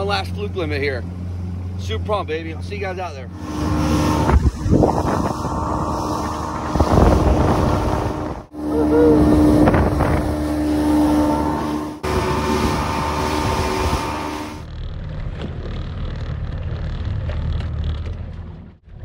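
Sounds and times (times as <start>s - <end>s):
outboard motor hum: 0.0s - 19.0s
water rushing past hull: 3.3s - 14.7s
wind buffeting microphone: 3.4s - 14.4s.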